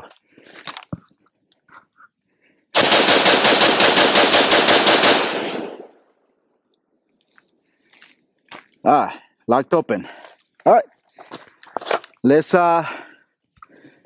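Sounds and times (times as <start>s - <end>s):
rifle shots in rapid string: 2.8s - 5.9s.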